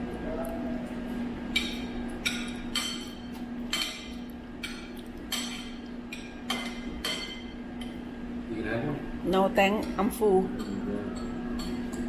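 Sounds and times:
cutlery clinking on a plate: 0:01.5 - 0:08.0, 0:10.6 - 0:12.0.

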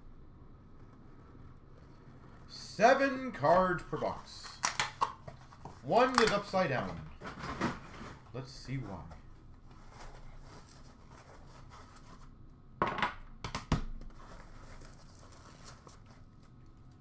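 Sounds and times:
card box rustling and scraping: 0:05.2 - 0:12.4, 0:14.1 - 0:16.4.

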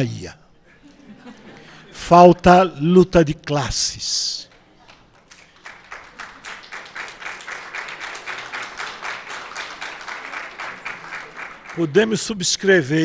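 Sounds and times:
audience applauding: 0:04.5 - 0:12.6.

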